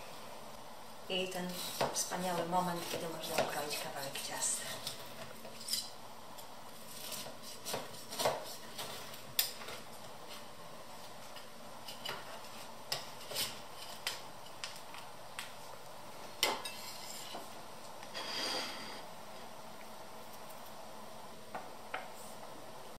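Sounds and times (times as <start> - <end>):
knife scrape: 5.6 - 6.0, 6.8 - 9.1, 16.6 - 17.4, 18.1 - 19.0.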